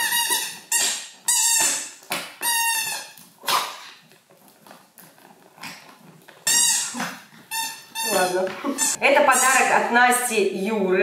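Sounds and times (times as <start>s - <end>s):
rubber dog toy squeaking: 0.0s - 3.8s, 6.4s - 9.6s.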